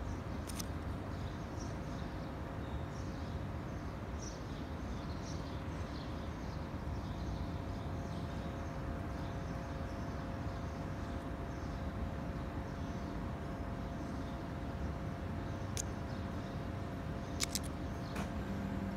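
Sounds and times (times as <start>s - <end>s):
faint steady hum: 0.0s - 18.9s
sharp click: 0.4s - 0.8s, 15.7s - 16.0s, 17.4s - 18.3s.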